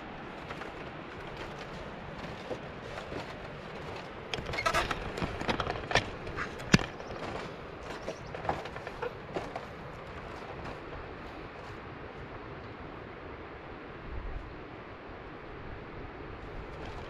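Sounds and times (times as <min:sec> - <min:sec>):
irregular knocks and clicks: 0:00.4 - 0:10.9.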